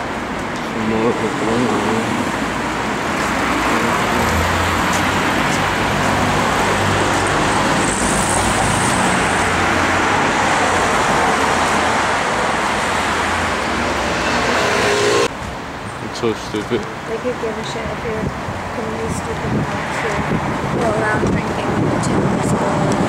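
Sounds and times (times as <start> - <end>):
road traffic rushing: 0.0 - 23.0
low hum: 12.6 - 15.4.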